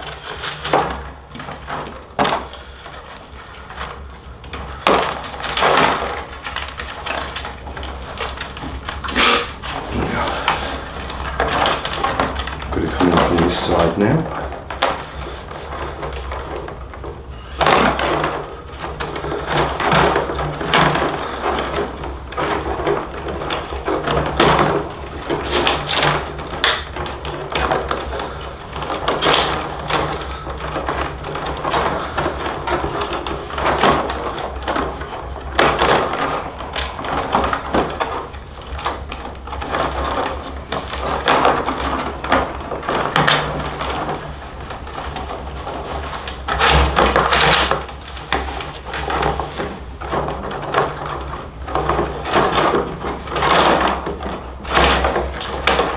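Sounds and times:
steady low hum: 0.0s - 55.9s
lace scraping against rawhide: 6.5s - 14.1s.

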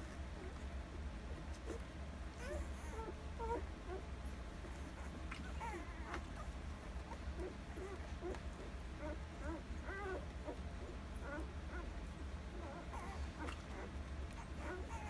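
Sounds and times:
steady low hum: 0.0s - 15.0s
puppies squeaking and whimpering: 0.3s - 15.0s.

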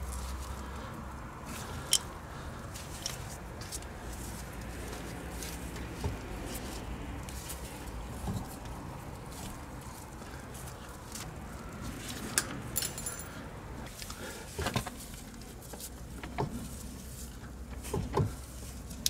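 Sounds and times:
rubber rubbing and handling: 1.4s - 12.4s.

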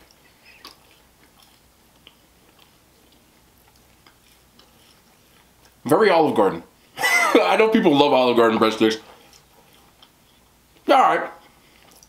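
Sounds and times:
person chewing: 0.0s - 5.8s, 9.1s - 12.0s.

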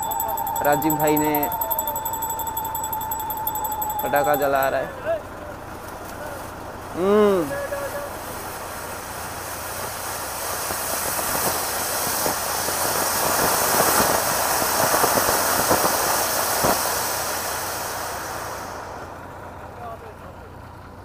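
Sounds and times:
firework fountain hissing: 8.2s - 19.1s.

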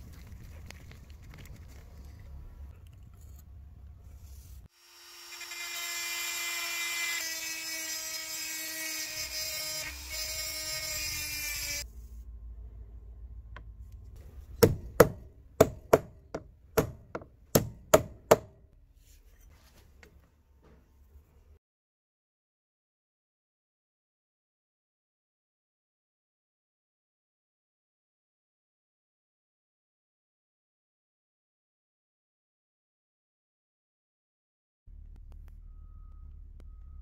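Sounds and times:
electric drill running: 4.7s - 11.8s.

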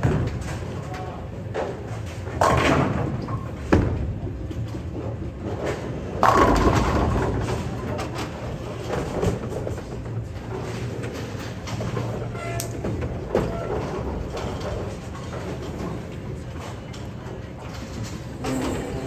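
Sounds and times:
bowling balls rolling: 0.0s - 19.0s
bowling pins crashing: 6.0s - 9.6s.

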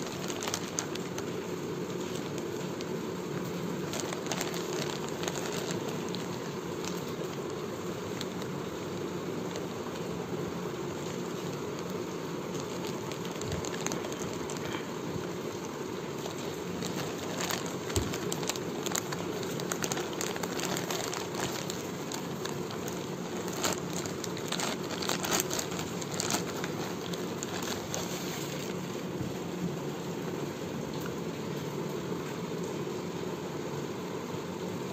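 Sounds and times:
plastic bag crinkling: 0.0s - 29.4s
steady background hum: 0.0s - 34.9s.

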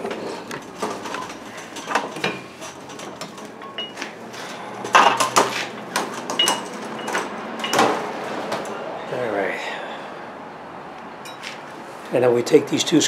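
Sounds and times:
metal tools clinking: 0.6s - 8.0s, 11.2s - 11.6s.

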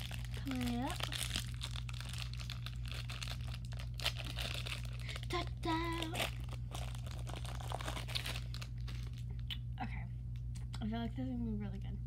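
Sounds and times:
plastic wrapper crinkling: 0.0s - 9.5s.

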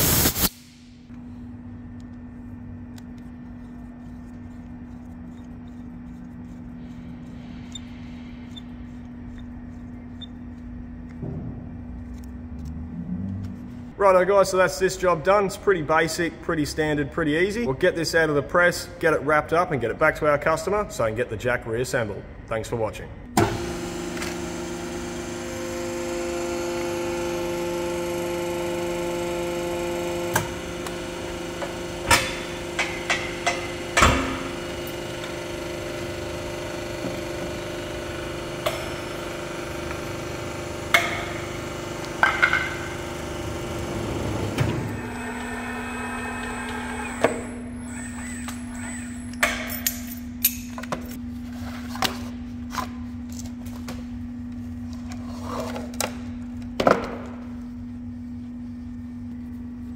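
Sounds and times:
low steady hum: 0.8s - 23.4s
electric pump motor humming: 23.4s - 49.4s.

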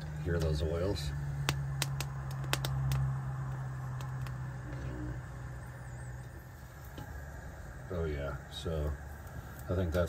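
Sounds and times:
stove burner hum: 0.0s - 10.0s
pepper skin popping and crackling: 1.3s - 4.8s.

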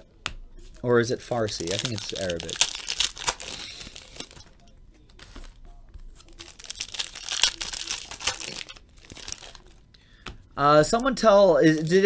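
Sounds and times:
foil wrapper tearing and crinkling: 1.4s - 4.4s, 6.2s - 9.8s.

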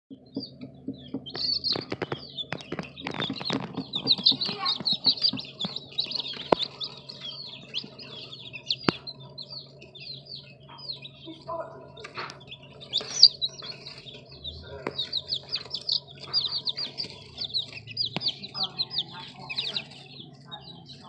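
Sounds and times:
chicks peeping: 0.1s - 21.0s
faint low hum: 0.2s - 21.0s
sharp clicks and rustles: 0.6s - 9.1s.

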